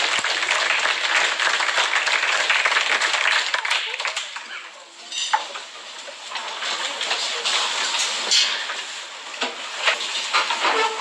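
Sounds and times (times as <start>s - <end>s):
scattered clapping: 0.0s - 4.7s
crowd noise: 0.0s - 9.9s
tableware clinking: 5.0s - 5.6s.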